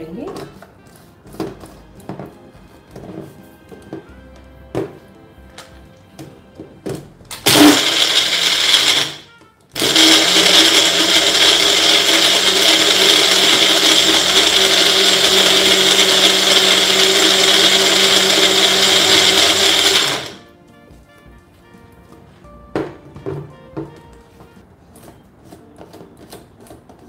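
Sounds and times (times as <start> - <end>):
blender motor blending ice: 7.4 - 20.4.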